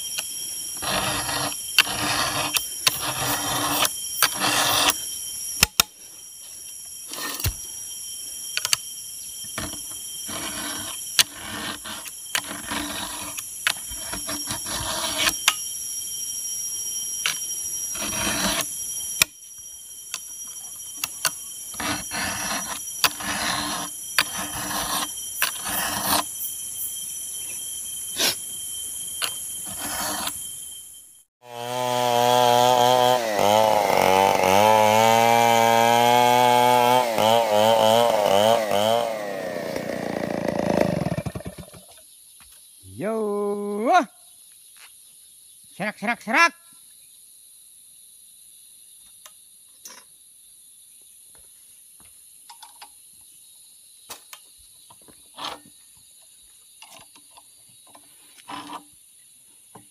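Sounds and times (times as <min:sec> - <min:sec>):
steady high-pitched whine: 0:00.0 - 0:31.3
file rasping on chainsaw chain: 0:00.8 - 0:05.0, 0:09.6 - 0:15.6, 0:17.9 - 0:18.7, 0:21.7 - 0:26.4, 0:29.6 - 0:30.4, 0:31.4 - 0:41.6.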